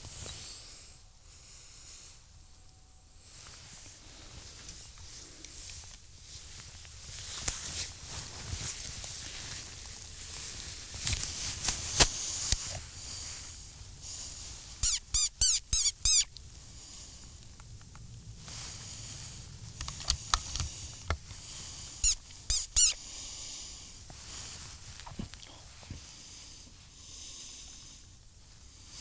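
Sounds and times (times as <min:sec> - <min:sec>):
high-pitched wavering squeaks: 0:14.8 - 0:16.3, 0:22.0 - 0:23.0.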